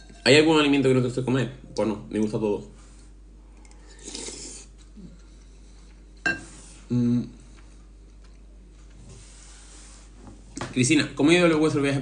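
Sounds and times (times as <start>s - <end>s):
metal spoon clinking on bowl: 0.0s - 0.3s.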